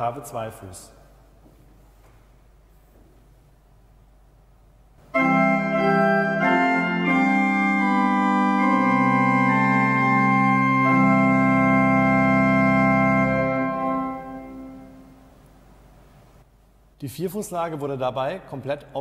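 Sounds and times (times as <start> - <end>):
pipe organ slow sustained chords: 5.0 - 15.9.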